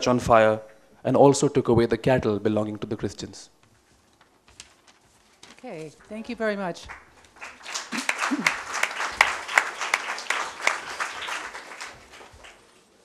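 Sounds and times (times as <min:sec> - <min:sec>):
applause: 0:06.0 - 0:12.8.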